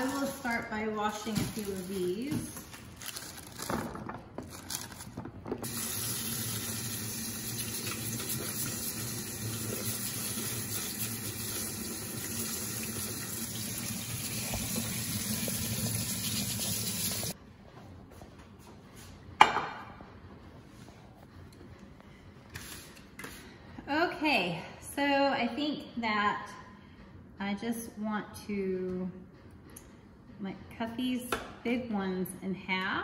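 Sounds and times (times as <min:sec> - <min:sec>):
faucet water running: 0:05.6 - 0:17.4.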